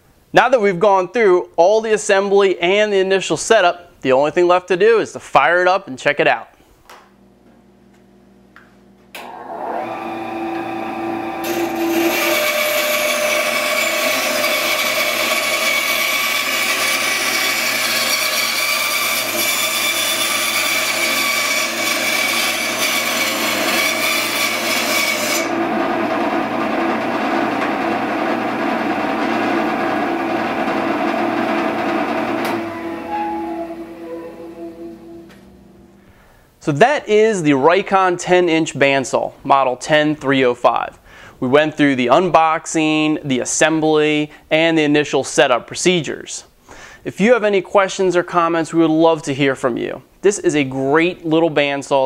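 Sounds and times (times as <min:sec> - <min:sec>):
bandsaw cutting plywood: 0:09.2 - 0:33.1
bandsaw motor humming: 0:09.2 - 0:35.9.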